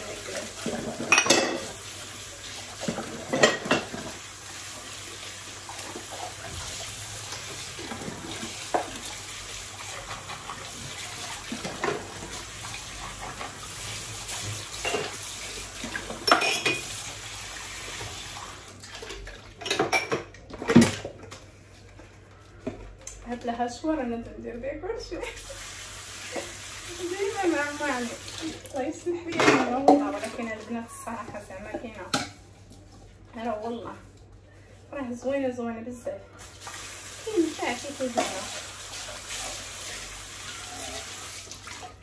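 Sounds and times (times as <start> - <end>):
tap water running: 0.0 - 21.4, 25.1 - 33.9, 36.3 - 42.0
dishes and cutlery clinking: 0.6 - 1.8, 2.8 - 4.2, 16.0 - 17.0, 19.6 - 20.9.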